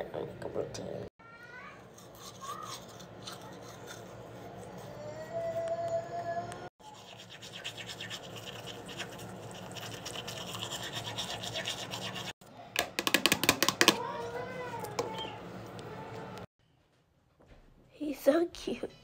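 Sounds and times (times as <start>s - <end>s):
toothbrush scrubbing teeth: 1.9s - 5.1s, 6.8s - 12.4s.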